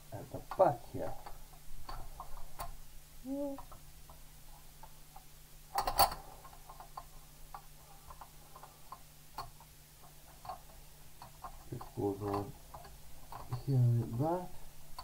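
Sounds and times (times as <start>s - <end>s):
parts clattering: 5.7s - 14.3s
model parts clicking and knocking: 5.7s - 15.0s.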